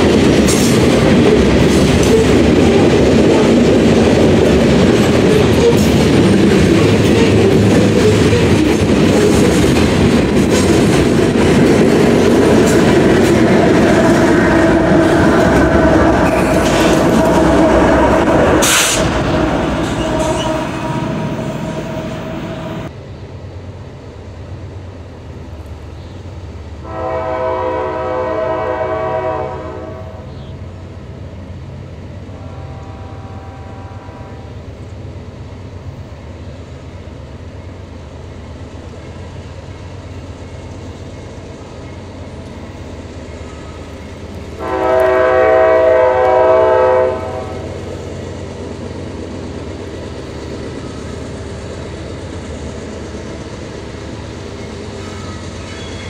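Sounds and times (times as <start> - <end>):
diesel locomotive passing close: 0.0 - 56.0
distant locomotive rumble: 0.0 - 56.0
locomotive air horn blasts: 17.4 - 22.7, 26.8 - 30.4, 32.4 - 34.6, 44.6 - 47.7.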